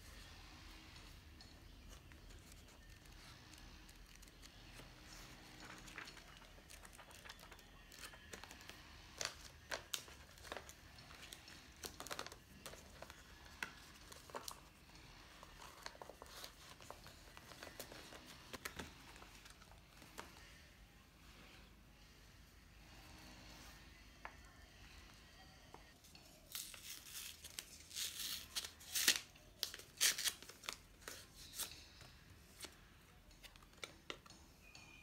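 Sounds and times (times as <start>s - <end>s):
plastic packaging crinkling: 5.5s - 14.6s.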